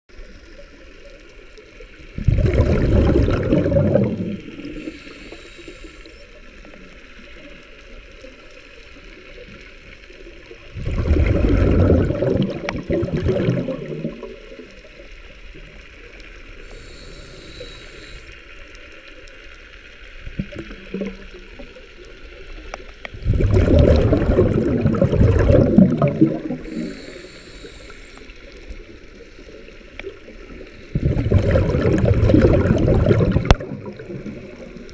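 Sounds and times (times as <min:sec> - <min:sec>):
low watery background: 0:00.1 - 0:34.9
diver exhaling bubbles: 0:02.2 - 0:05.1, 0:10.7 - 0:14.4, 0:23.1 - 0:27.8, 0:30.8 - 0:34.9
faint hiss: 0:04.0 - 0:10.7, 0:14.0 - 0:23.2, 0:26.1 - 0:31.0.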